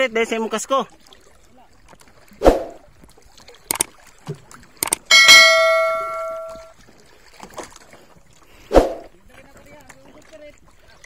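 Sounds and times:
bell chime: 5.1s - 6.7s.

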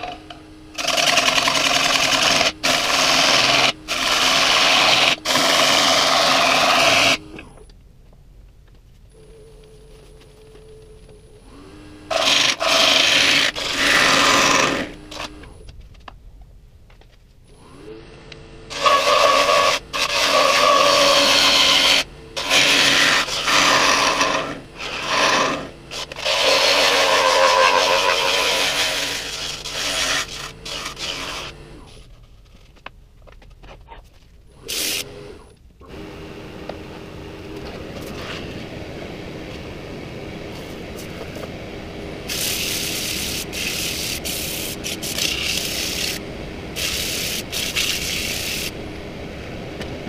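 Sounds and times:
lathe humming: 0.0s - 7.6s, 11.3s - 15.6s, 17.5s - 31.9s, 34.5s - 50.0s
sandpaper scratching wood: 0.8s - 7.2s, 12.1s - 15.3s, 18.7s - 31.6s, 42.3s - 46.2s, 46.8s - 48.7s
gouge scraping wood bowl: 12.1s - 15.3s, 18.7s - 31.6s.

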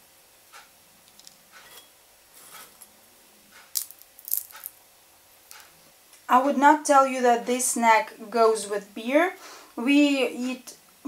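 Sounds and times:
seed shells cracking: 3.7s - 4.8s.

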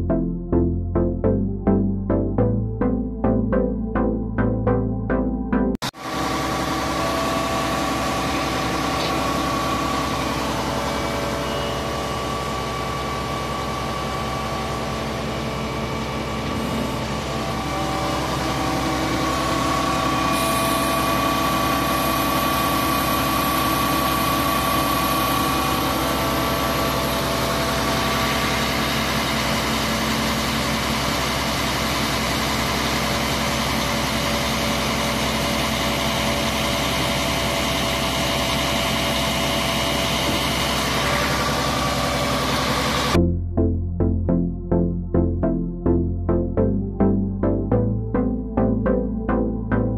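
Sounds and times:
diesel engine idling: 5.9s - 43.2s.

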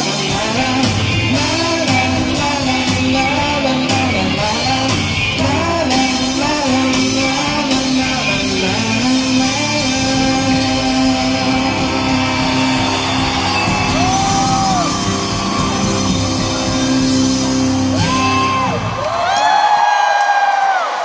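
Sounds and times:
live rock band playing: 0.0s - 19.3s
crowd noise: 0.0s - 21.0s
audience whooping: 9.9s - 21.0s.

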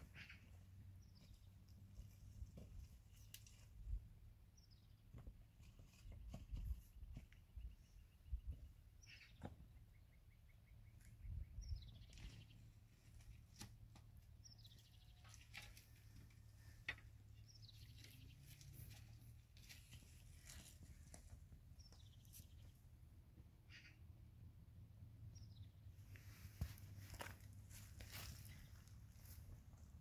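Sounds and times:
bird chirps: 7.6s - 12.7s, 17.3s - 19.0s, 25.3s - 25.9s.

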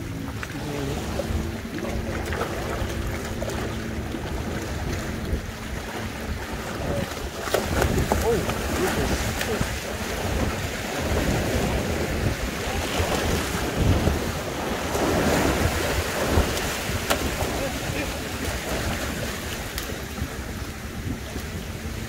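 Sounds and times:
sea waves washing over rocks: 0.0s - 22.0s
wind buffeting microphone: 0.0s - 22.0s.

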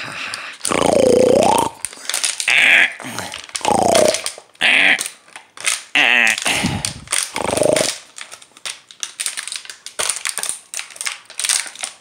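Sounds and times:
plastic bottle crunching: 0.6s - 12.0s
dog growling: 7.3s - 7.9s.

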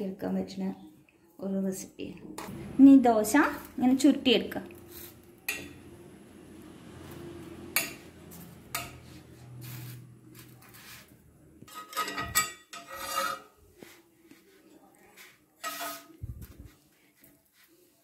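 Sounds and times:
steel spatula scraping griddle: 4.5s - 14.1s, 15.0s - 16.2s.

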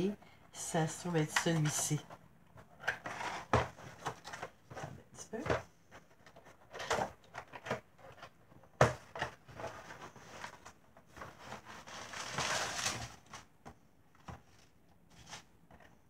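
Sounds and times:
packaging rustling: 9.0s - 13.5s.

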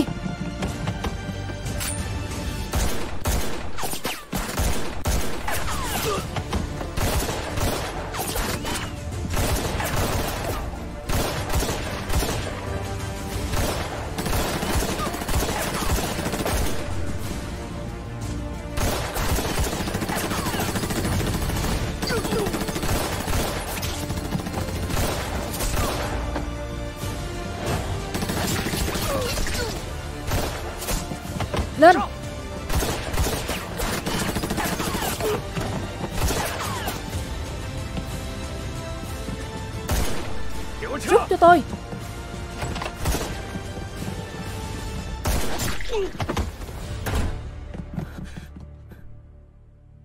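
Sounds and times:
dramatic background music: 0.0s - 50.0s
gunfire: 2.7s - 6.2s, 6.9s - 12.7s, 13.4s - 16.9s, 18.7s - 26.2s, 28.1s - 29.6s, 30.2s - 31.1s, 32.6s - 35.4s, 36.0s - 37.0s, 39.9s - 40.4s, 45.2s - 46.0s.

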